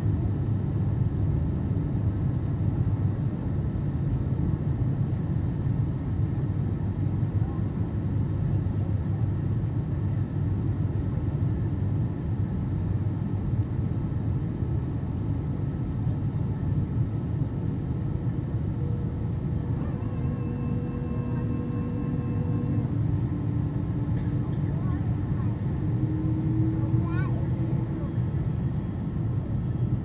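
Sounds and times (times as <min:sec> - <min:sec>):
airplane cabin rumble: 0:00.0 - 0:30.0
steady humming tones: 0:17.6 - 0:30.0.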